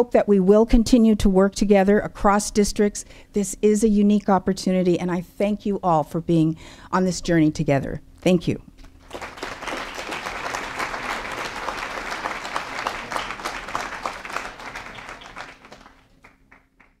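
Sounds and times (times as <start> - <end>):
audience applauding: 9.0 - 17.0.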